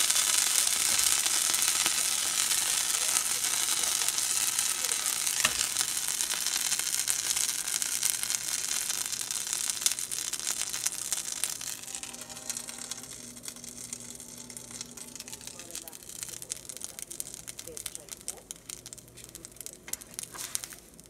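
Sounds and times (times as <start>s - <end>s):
pancake sizzling in a frying pan: 0.0s - 21.0s.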